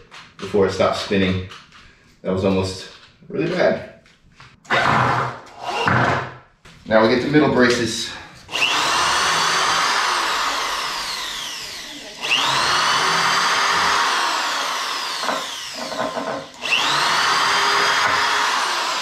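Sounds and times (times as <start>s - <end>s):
power drill whining into wood: 4.7s - 6.2s, 8.5s - 19.0s.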